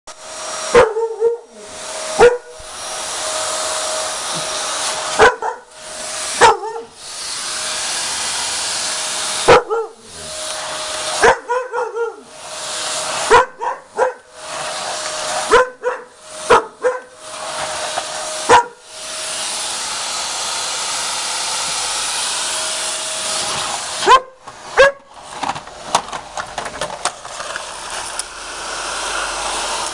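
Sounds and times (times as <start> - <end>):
vacuum cleaner running: 0.1 - 29.9
dog barking: 0.7 - 1.5, 2.2 - 2.6, 5.2 - 5.7, 6.4 - 6.9, 9.4 - 10.1, 11.2 - 12.3, 13.3 - 14.3, 15.5 - 17.2, 18.5 - 18.8, 24.0 - 25.1.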